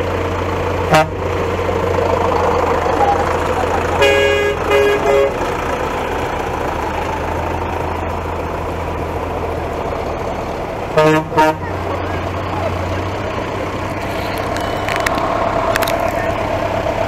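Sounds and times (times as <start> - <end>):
tractor diesel engine running: 0.0 - 17.0
low-pitched horn blasts: 0.9 - 1.3, 2.2 - 5.4, 11.0 - 11.8.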